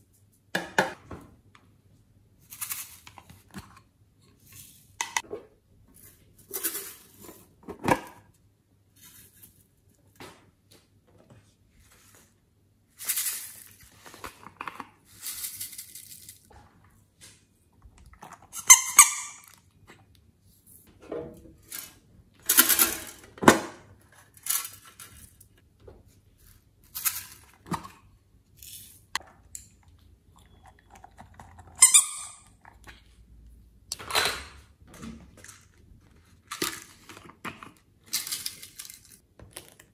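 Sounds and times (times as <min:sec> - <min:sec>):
squishy rubber toy squeaking: 0:31.8 - 0:32.5.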